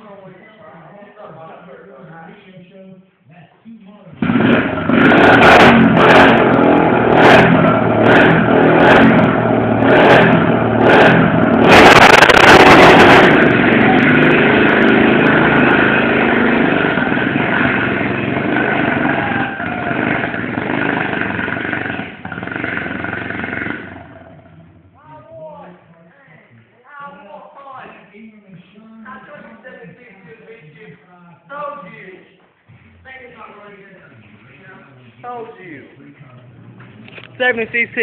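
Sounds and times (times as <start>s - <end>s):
atv engines running hard: 4.2s - 25.0s.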